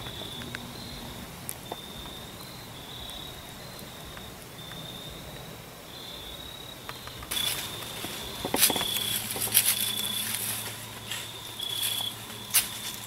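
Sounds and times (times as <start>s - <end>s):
crickets trilling: 0.0s - 13.0s
sharp cracks: 6.8s - 13.0s
dry leaves crunching: 7.2s - 13.0s.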